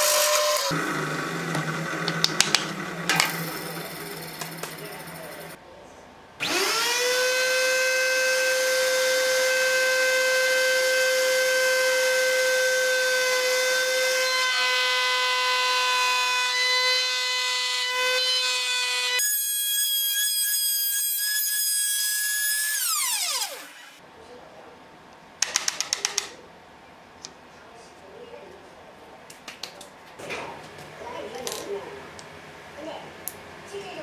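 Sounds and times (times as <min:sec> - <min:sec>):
table saw whining: 0:00.0 - 0:05.6, 0:06.4 - 0:24.0.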